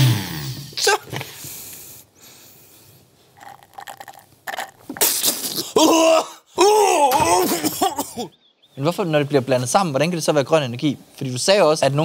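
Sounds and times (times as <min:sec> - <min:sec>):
man sucking through a straw: 0:03.3 - 0:05.8
man retching and coughing: 0:03.4 - 0:08.4.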